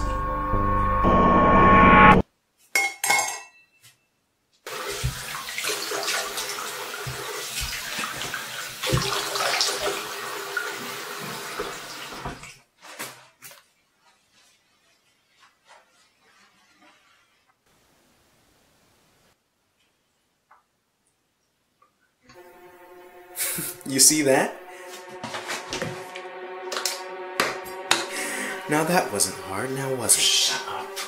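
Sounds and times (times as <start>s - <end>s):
loud music chord: 0.0s - 2.2s, 22.3s - 31.0s
water splashing as man rinses face: 4.6s - 12.6s
tap water running into a sink: 4.7s - 12.5s.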